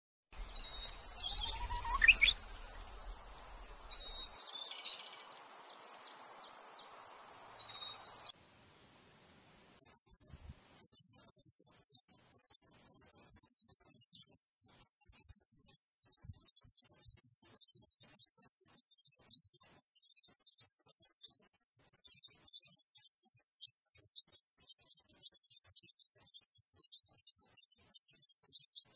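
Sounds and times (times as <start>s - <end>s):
songbirds whistling: 0.4s - 8.3s, 9.8s - 28.9s
nestlings cheeping: 0.6s - 4.3s, 9.8s - 28.9s.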